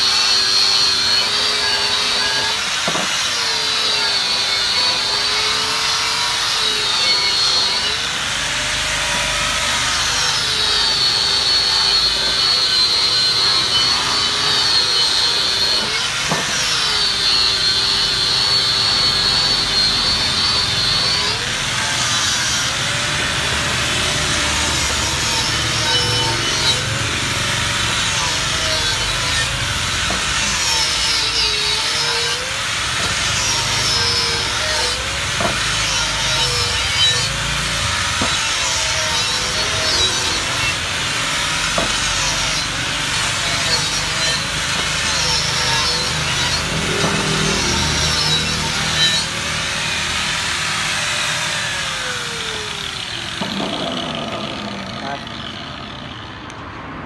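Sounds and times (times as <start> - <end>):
angle grinder grinding metal: 0.0 - 56.9
steady mechanical din: 32.9 - 56.7.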